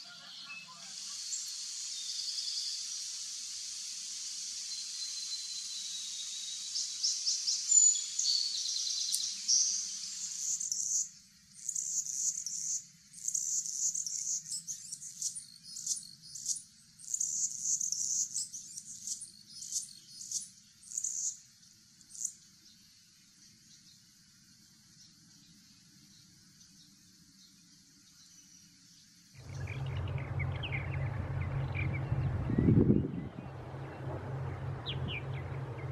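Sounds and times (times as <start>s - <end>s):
steady high hiss: 0.0s - 15.3s
hummingbird buzzy song: 0.0s - 35.9s.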